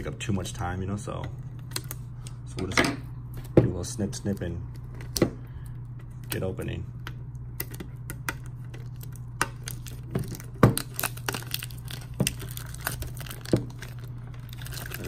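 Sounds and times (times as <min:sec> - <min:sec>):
steady low hum: 0:00.0 - 0:15.0
plastic wrapping crinkling: 0:08.4 - 0:15.0.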